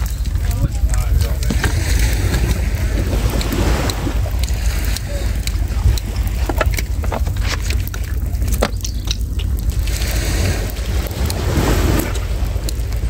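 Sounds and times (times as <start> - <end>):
light clicks and knocks: 0.0 - 9.8
wind buffeting microphone: 0.0 - 13.0.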